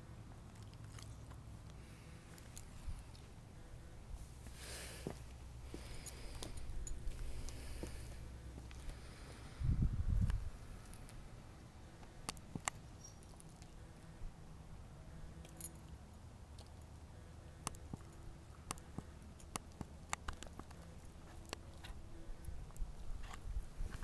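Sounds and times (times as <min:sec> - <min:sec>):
puppy chewing in bark mulch: 0:00.4 - 0:03.0.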